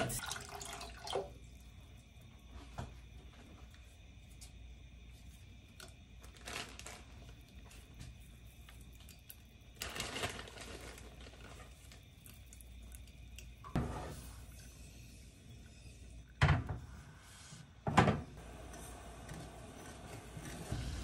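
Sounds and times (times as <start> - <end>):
plastic bag rustling: 6.2 - 7.8, 9.8 - 12.0.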